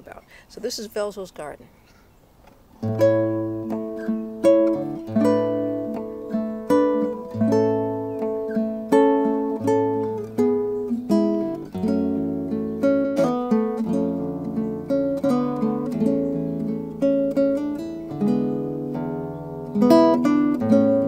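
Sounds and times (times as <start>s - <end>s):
fingerstyle acoustic guitar: 2.8s - 21.0s.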